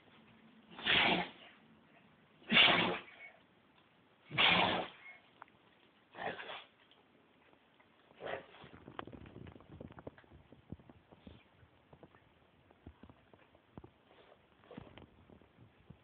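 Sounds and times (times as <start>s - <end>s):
dog sneezing: 0.7s - 1.5s, 2.4s - 3.2s, 4.3s - 5.1s, 6.2s - 6.7s.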